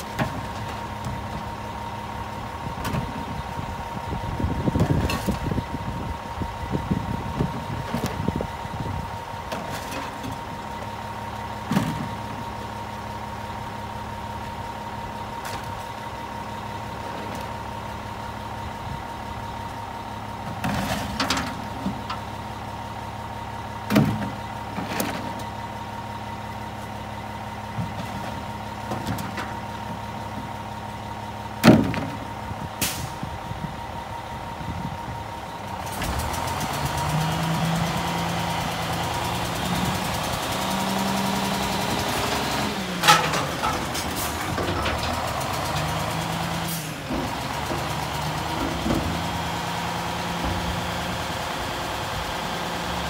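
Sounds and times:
garbage truck engine idling: 0:00.0 - 0:53.0.

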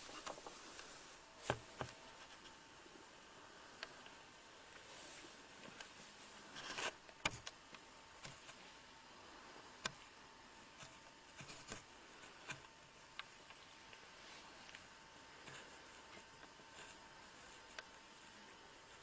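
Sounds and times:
faint hiss: 0:00.0 - 0:06.9
thin steady hum: 0:00.0 - 0:19.0.

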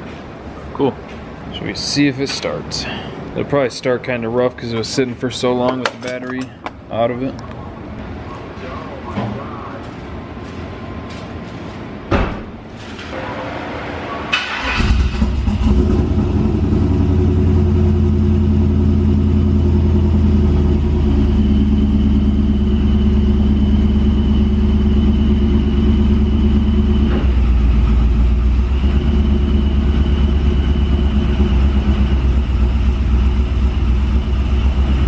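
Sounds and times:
pickup truck engine idling: 0:14.5 - 0:35.0.

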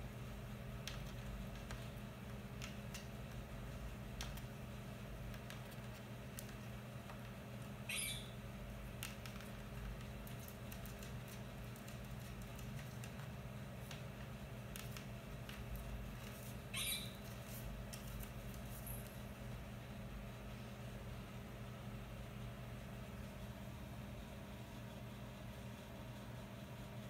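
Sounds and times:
beak and claws tapping: 0:00.7 - 0:19.2
parakeet squawking: 0:07.8 - 0:08.4, 0:16.7 - 0:17.3.

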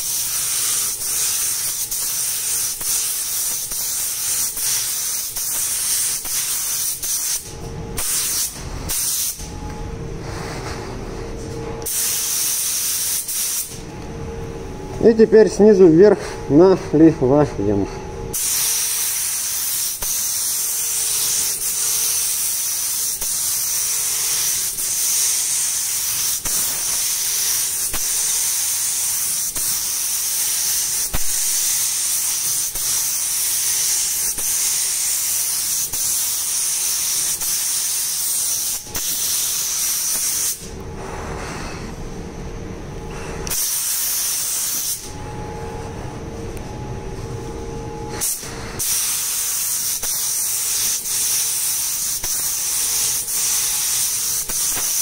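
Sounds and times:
paint spray gun hissing: 0:00.0 - 0:09.4, 0:11.9 - 0:13.8, 0:18.4 - 0:40.6, 0:43.5 - 0:45.1, 0:48.2 - 0:55.0.

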